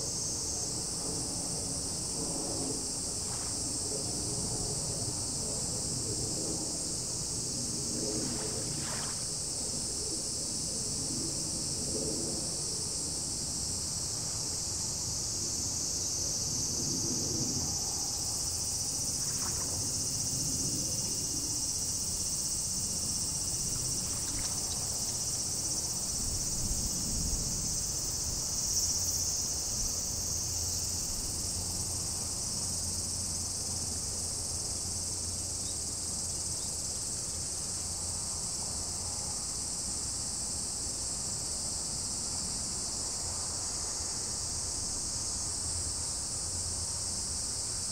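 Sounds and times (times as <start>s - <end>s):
insects buzzing shrilly: 0.0s - 11.8s, 12.5s - 38.2s.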